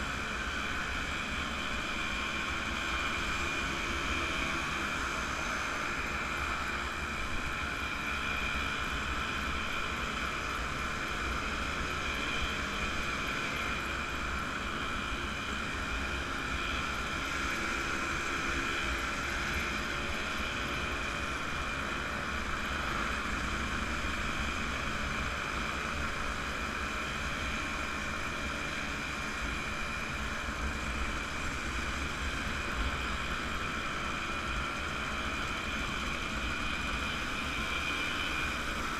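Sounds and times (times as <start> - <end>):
two-stroke motorcycle engines: 0.0 - 38.9.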